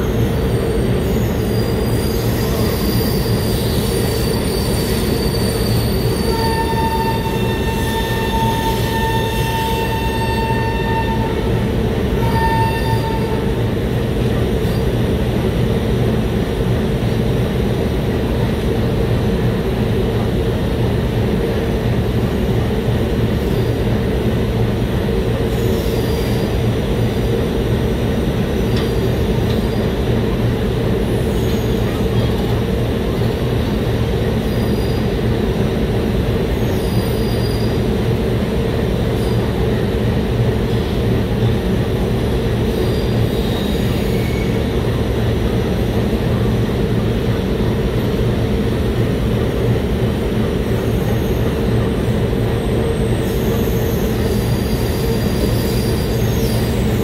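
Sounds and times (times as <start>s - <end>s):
high squeal from running gear: 0.0s - 11.5s, 12.2s - 13.5s, 25.5s - 26.6s, 34.4s - 35.1s, 36.6s - 37.8s, 42.7s - 44.6s, 53.0s - 57.0s
train wheels rumbling on rail: 0.0s - 57.0s.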